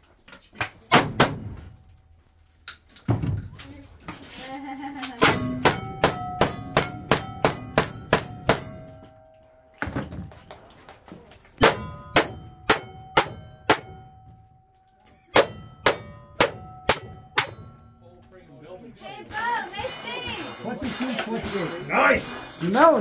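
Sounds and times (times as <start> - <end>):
steel target ringing: 5.2 - 10.2, 11.6 - 18.2.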